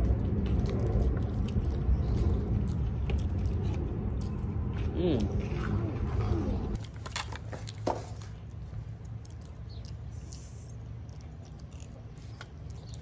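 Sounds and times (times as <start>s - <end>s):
low rumble: 0.0s - 6.8s
person chewing food: 0.0s - 13.0s.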